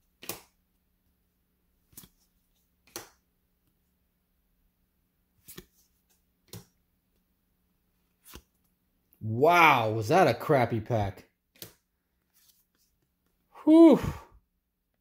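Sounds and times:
cards flicked snapping: 0.2 - 0.6, 2.8 - 3.2, 5.4 - 6.8, 11.5 - 11.8.

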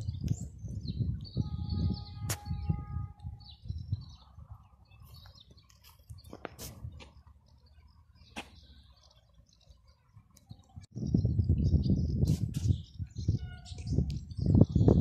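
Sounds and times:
wind buffeting microphone: 0.0 - 5.5, 10.5 - 15.0
small birds chirping: 0.0 - 15.0.

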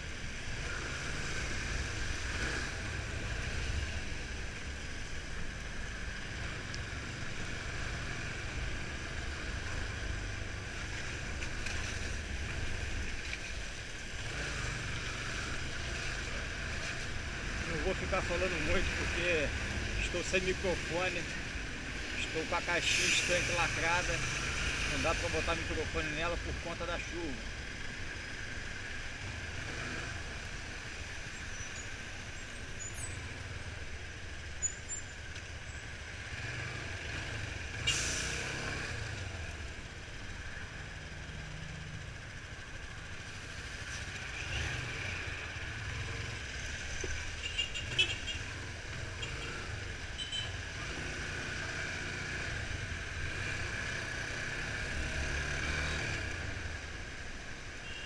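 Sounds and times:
muffled traffic: 0.0 - 58.0
short sharp hiss: 37.8 - 38.5.

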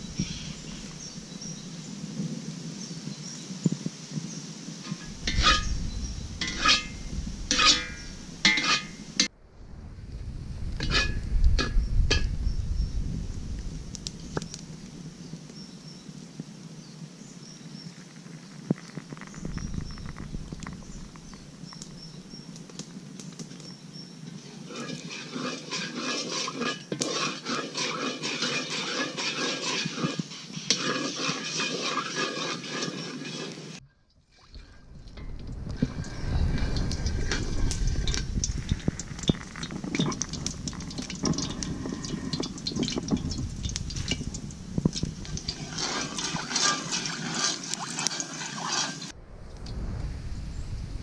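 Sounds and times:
small birds chirping: 0.0 - 2.0, 5.1 - 7.2, 14.1 - 24.7
wood fire crackling: 4.7 - 15.6, 17.8 - 51.0
oil sizzling in a wok: 24.4 - 33.8.

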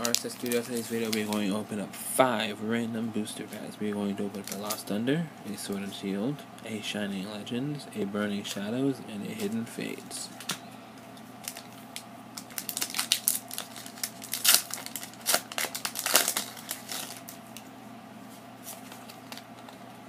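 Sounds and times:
foil wrapper tearing and crinkling: 0.0 - 1.5, 4.4 - 4.8, 11.4 - 11.7, 12.4 - 17.4, 18.7 - 19.7
cards rustling: 0.0 - 1.7, 3.4 - 6.0, 11.4 - 17.6, 18.6 - 19.8.

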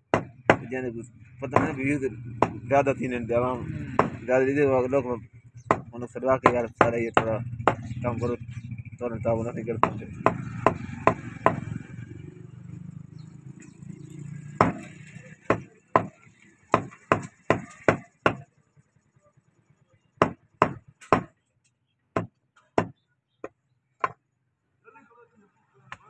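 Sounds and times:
knife chopping on wooden block: 14.6 - 14.9, 20.2 - 21.3.

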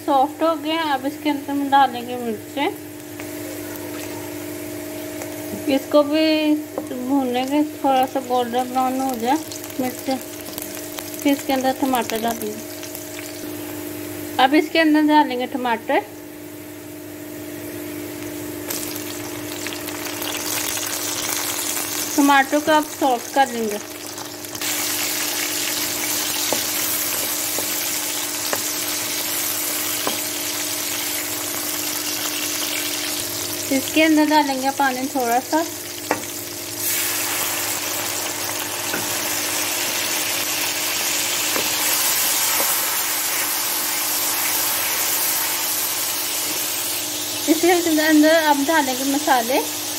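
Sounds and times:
steady low hum: 0.0 - 43.3
onions sizzling in oil: 0.1 - 49.9
spatula tapping: 26.3 - 30.4.

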